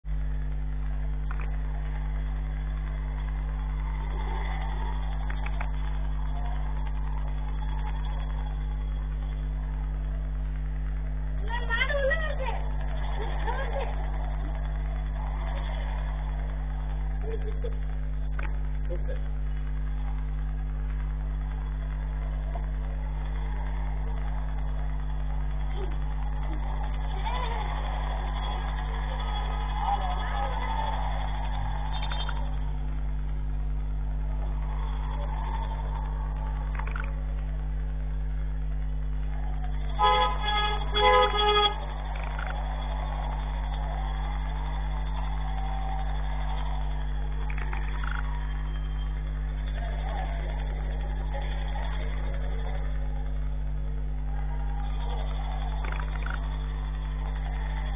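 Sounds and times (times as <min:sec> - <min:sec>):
electrical mains hum: 0:00.0 - 0:57.9
vehicle horn: 0:39.9 - 0:41.9.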